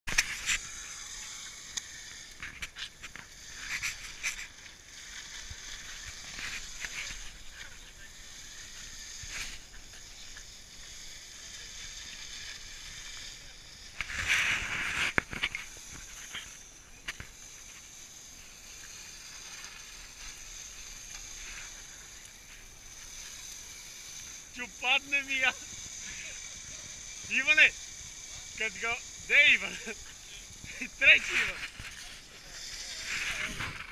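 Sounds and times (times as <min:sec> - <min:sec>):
tyres hissing and scraping on ice: 0:00.1 - 0:33.9
short scrapes and crunches: 0:13.9 - 0:17.8.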